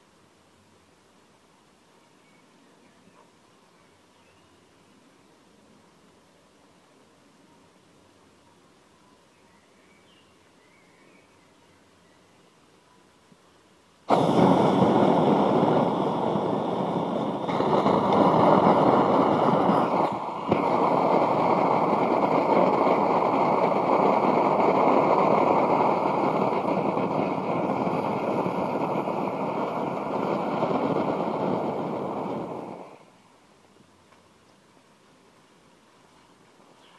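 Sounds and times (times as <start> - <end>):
rushing hiss of burning gas: 14.0 - 33.2.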